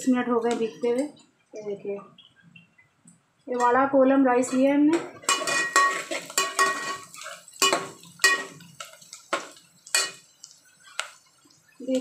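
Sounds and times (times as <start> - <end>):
metal pots and lid clinking: 3.5 - 10.2.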